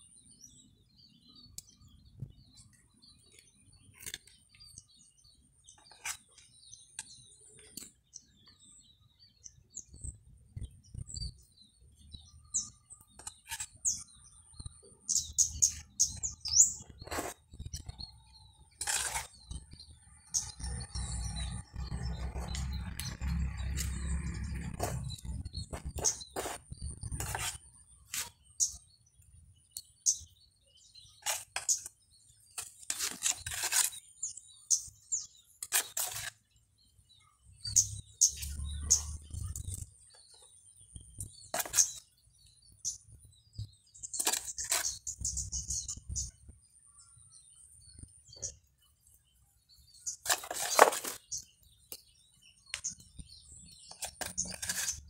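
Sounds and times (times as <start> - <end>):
hands scraping soil and stones: 3.4 - 8.2, 12.1 - 28.9, 31.0 - 36.6, 41.0 - 42.1, 44.0 - 46.3, 50.0 - 55.0.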